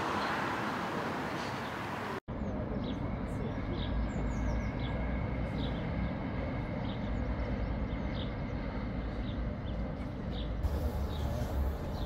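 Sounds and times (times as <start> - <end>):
distant vehicles rumbling: 0.0 - 12.0.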